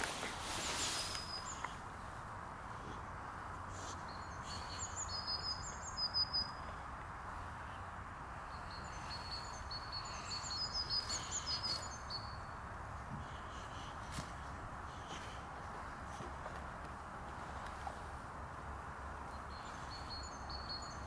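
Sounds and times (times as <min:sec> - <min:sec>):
outdoor background noise: 0:00.0 - 0:21.0
small bird chirping: 0:03.8 - 0:06.7, 0:08.5 - 0:12.6, 0:19.3 - 0:21.0.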